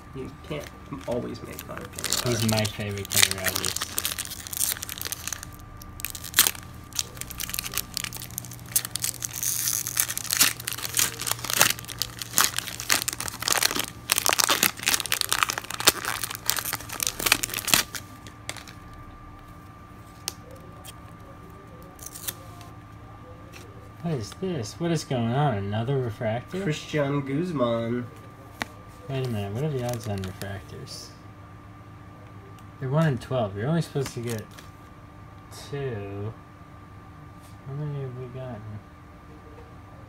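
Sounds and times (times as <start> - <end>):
foil wrapper crinkling: 0.5 - 19.0, 21.8 - 22.7, 28.6 - 30.6, 34.0 - 34.7.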